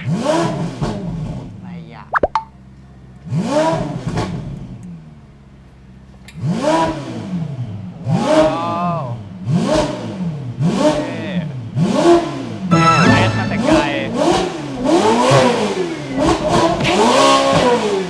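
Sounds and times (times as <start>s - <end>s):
car engine revving: 0.0s - 1.6s, 3.2s - 5.1s, 6.4s - 8.5s, 9.2s - 12.8s, 13.4s - 18.0s.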